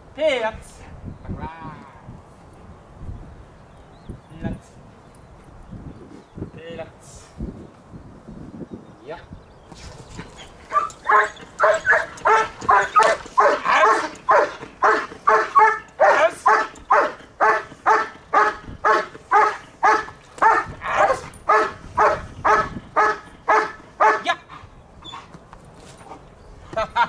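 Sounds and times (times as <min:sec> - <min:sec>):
dog barking rhythmically: 0:10.7 - 0:24.4.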